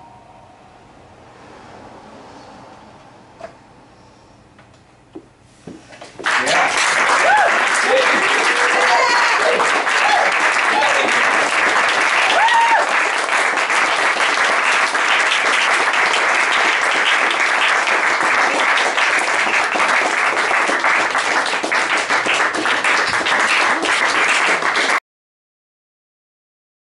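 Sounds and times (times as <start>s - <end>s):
audience applauding: 6.2s - 25.0s.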